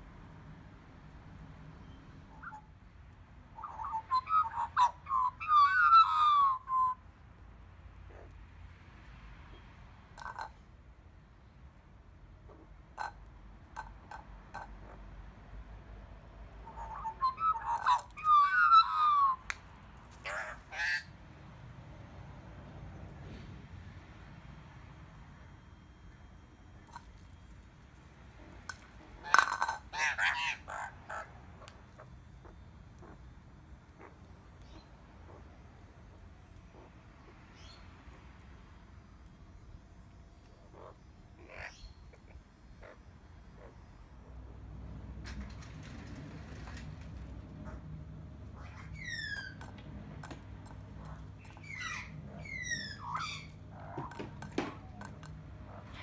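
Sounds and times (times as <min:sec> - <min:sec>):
magpies calling: 0:02.3 - 0:02.7, 0:03.6 - 0:07.0, 0:16.6 - 0:19.5, 0:20.1 - 0:21.2, 0:28.4 - 0:33.3, 0:40.5 - 0:44.6, 0:47.5 - 0:49.7, 0:50.6 - 0:56.0.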